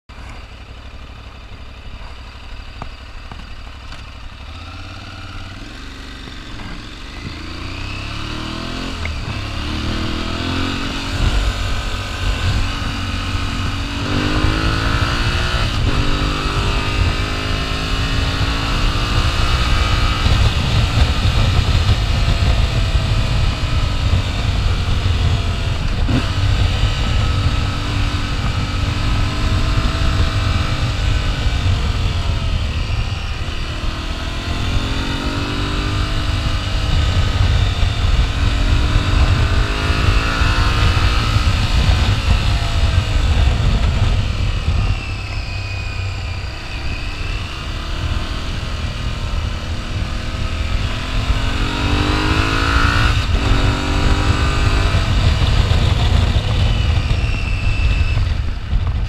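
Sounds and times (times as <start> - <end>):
motorcycle engine accelerating: 0.1 - 59.0
wind and road noise: 0.1 - 59.0.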